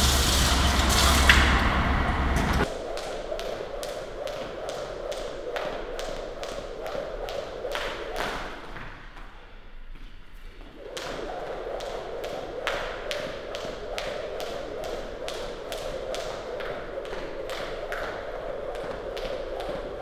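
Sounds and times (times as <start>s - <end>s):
jump rope slapping hard floor: 2.6s - 9.3s, 11.0s - 20.0s.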